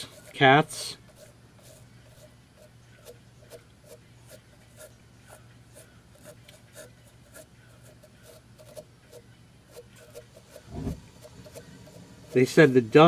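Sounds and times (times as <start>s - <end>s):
small brush scrubbing: 0.0s - 13.0s.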